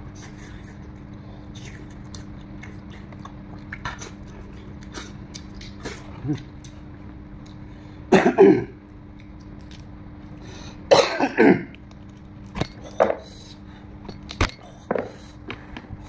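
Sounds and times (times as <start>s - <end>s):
chewing clicks and smacks: 1.0s - 6.8s, 9.1s - 10.4s
man coughing: 8.1s - 8.8s, 10.9s - 11.7s.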